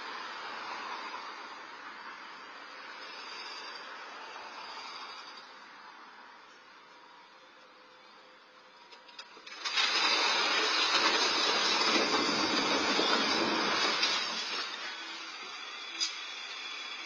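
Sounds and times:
falling masonry and rubble: 0:09.2 - 0:16.0.

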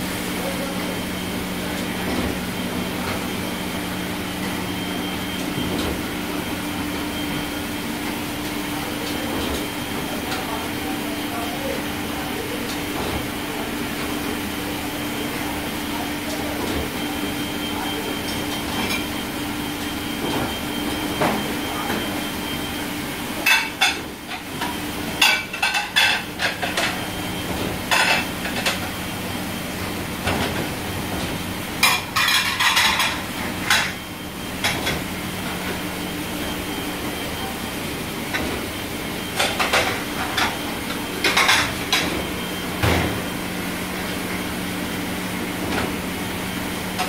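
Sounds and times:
steady mechanical hum: 0:00.0 - 0:47.0.

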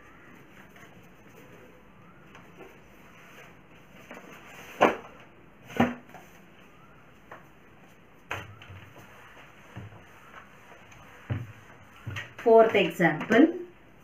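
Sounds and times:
duster tapping whiteboard: 0:08.3 - 0:13.5.

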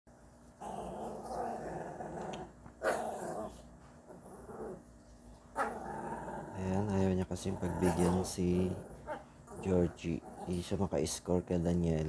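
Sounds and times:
dog growling: 0:00.6 - 0:04.9, 0:05.6 - 0:10.8.

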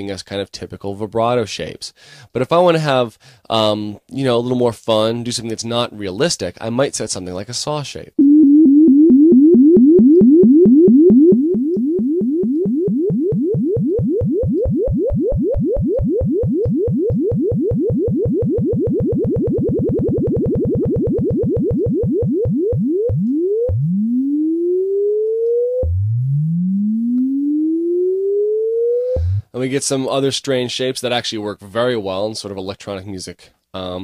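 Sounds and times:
synthesizer sine tone rising in pitch: 0:08.2 - 0:29.5.

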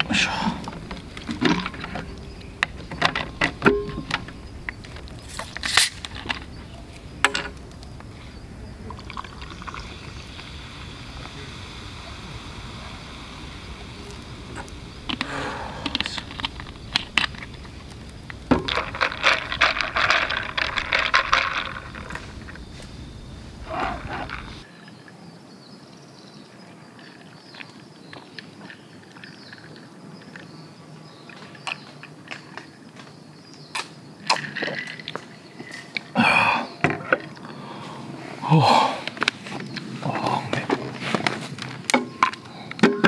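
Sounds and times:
soda water poured fizzing: 0:08.8 - 0:17.4.

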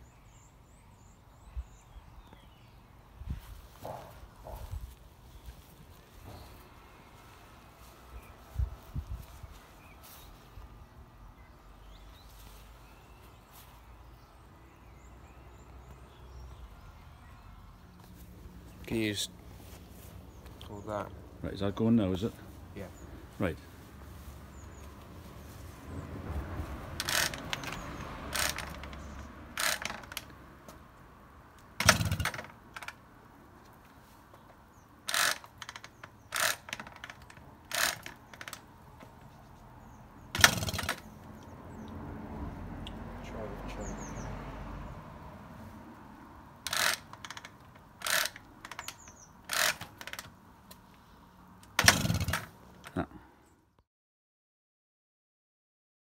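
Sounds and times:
sharp rattling bursts: 0:26.8 - 0:30.3, 0:31.8 - 0:33.0, 0:35.0 - 0:38.8, 0:40.3 - 0:41.4, 0:46.6 - 0:50.4, 0:51.6 - 0:53.0
moped pedal mechanism ratcheting: 0:27.0 - 0:30.3, 0:31.8 - 0:33.0, 0:35.0 - 0:38.7, 0:40.3 - 0:41.4, 0:46.6 - 0:50.8, 0:51.6 - 0:52.9.

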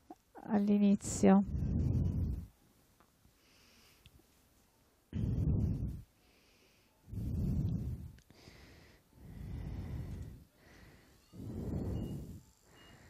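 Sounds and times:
heavy breathing: 0:01.4 - 0:02.6, 0:05.1 - 0:13.0.

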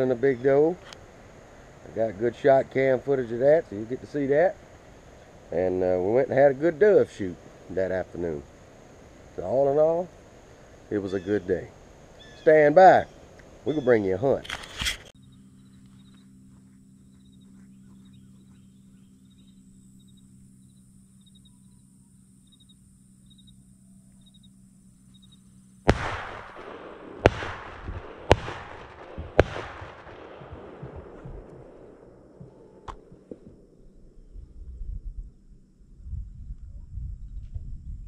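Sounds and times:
vehicle engine low hum: 0:00.0 - 0:37.8
echoing shotgun blasts: 0:25.9 - 0:33.2.

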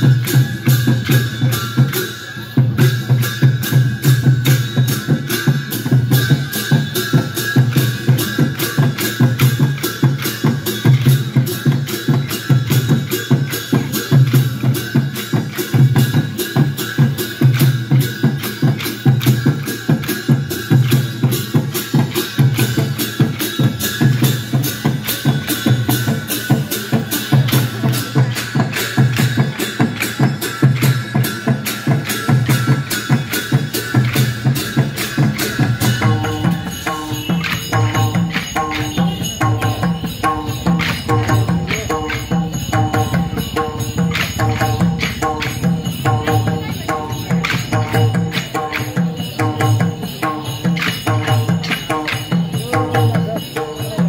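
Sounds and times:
drums beating fast rhythm: 0:00.0 - 0:54.0
steady high tone: 0:34.8 - 0:54.0.

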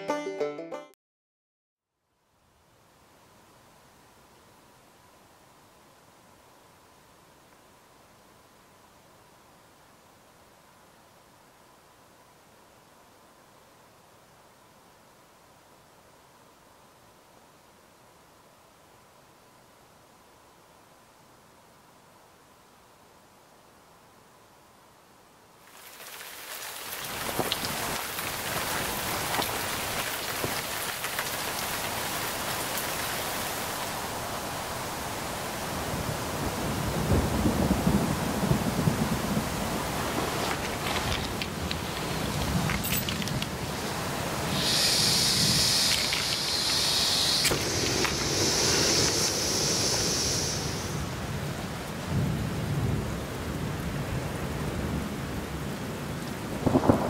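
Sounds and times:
rain falling: 0:25.5 - 0:57.0
raindrops ticking: 0:25.7 - 0:33.7, 0:40.4 - 0:43.6, 0:44.6 - 0:48.2
burner flame hissing: 0:43.6 - 0:51.3
gas hissing from valve: 0:44.5 - 0:51.0.

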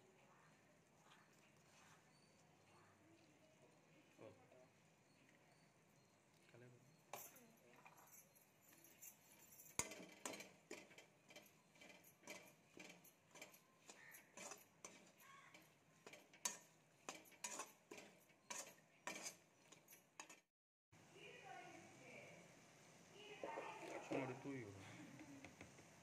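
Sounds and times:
spatula scraping metal pan: 0:08.7 - 0:20.5.

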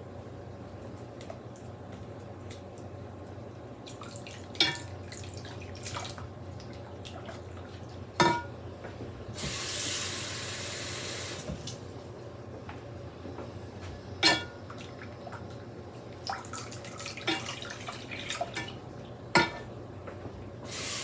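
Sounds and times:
utensils clinking against pot: 0:08.2 - 0:08.5, 0:14.2 - 0:14.5, 0:19.4 - 0:19.7
kitchen faucet running: 0:09.4 - 0:11.8, 0:20.7 - 0:21.0.

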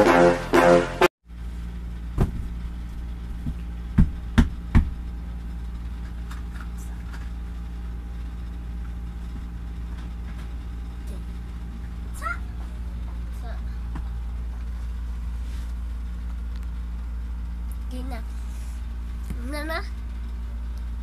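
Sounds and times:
low machine hum: 0:00.0 - 0:21.0
sharp knocks: 0:03.4 - 0:05.0.

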